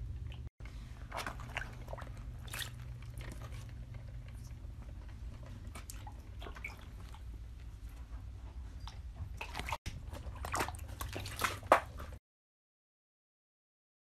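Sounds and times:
low steady hum: 0.0 - 12.2
animal splashing in shallow water: 0.8 - 4.6, 5.2 - 7.5, 9.2 - 12.2.

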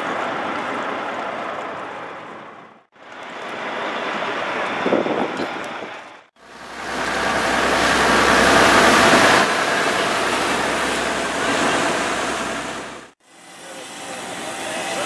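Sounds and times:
churning wake: 0.0 - 15.0
wind: 0.0 - 15.0
rushing water: 6.4 - 13.2.

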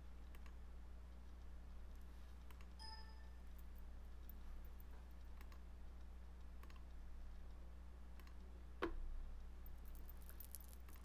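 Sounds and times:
steady low hum: 0.0 - 11.0
computer mouse clicks: 0.2 - 0.6, 2.3 - 3.3, 5.1 - 7.0, 8.1 - 8.5.

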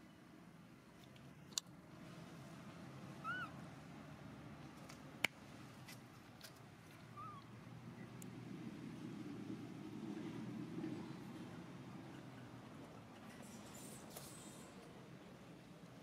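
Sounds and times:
faint background noise: 0.0 - 16.0
squeaky animal calls: 3.2 - 3.6, 7.1 - 7.4.

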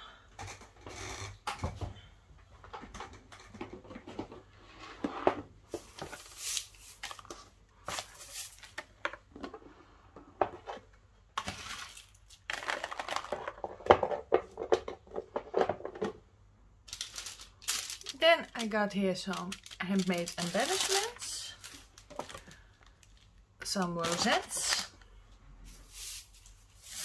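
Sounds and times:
shredded paper rustling: 6.1 - 8.7, 16.9 - 22.6, 25.7 - 27.0.

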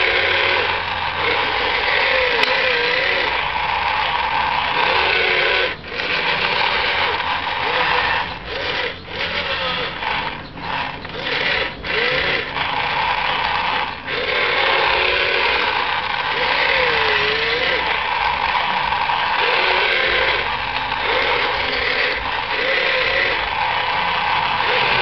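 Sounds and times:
electric motors whining: 0.0 - 25.0.

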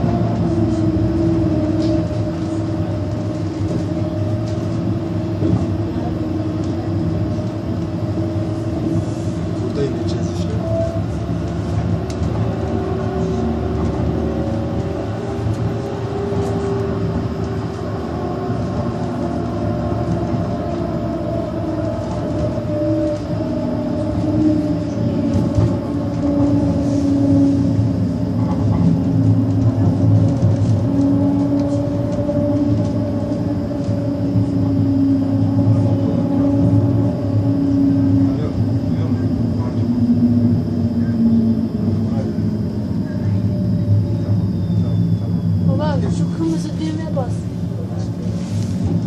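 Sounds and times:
tram running rumble: 0.0 - 49.0
humming tones drifting in pitch: 12.0 - 47.3.

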